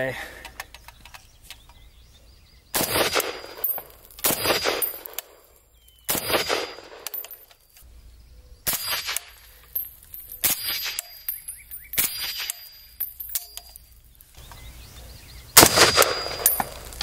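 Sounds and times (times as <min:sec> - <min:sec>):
rifle shots: 0:02.8 - 0:05.4, 0:06.1 - 0:07.2, 0:15.6 - 0:17.0.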